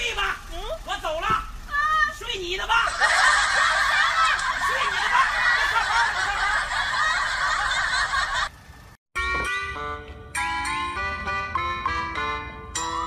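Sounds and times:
crowd laughing: 2.8s - 8.6s
music: 9.2s - 13.0s.

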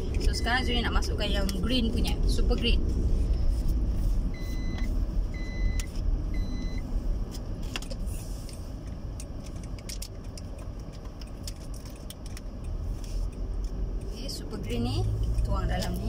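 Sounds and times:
car cabin rumble: 0.0s - 16.0s
short electronic beeps: 4.3s - 6.8s.

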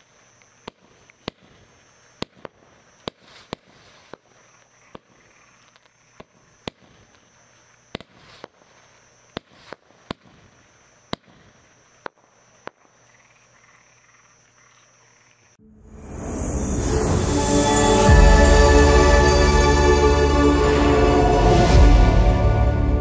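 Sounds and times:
soft firework pops: 0.4s - 13.4s.

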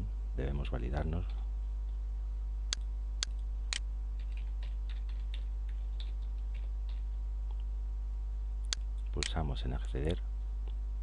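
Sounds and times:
keyboard typing: 4.2s - 7.1s.

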